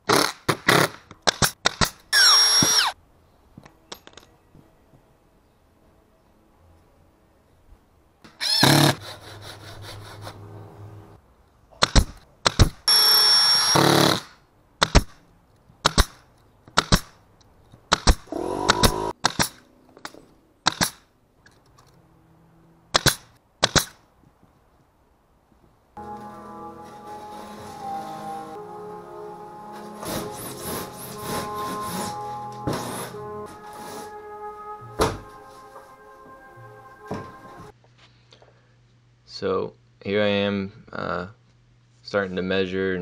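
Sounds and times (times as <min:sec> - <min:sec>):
nail gun shots: 0:00.0 - 0:02.8, 0:11.8 - 0:12.8, 0:13.7 - 0:15.2, 0:15.8 - 0:16.2, 0:16.8 - 0:17.2, 0:17.9 - 0:19.7, 0:20.6 - 0:21.1, 0:22.9 - 0:24.0
cordless drill whining: 0:02.2 - 0:03.0, 0:12.9 - 0:14.2.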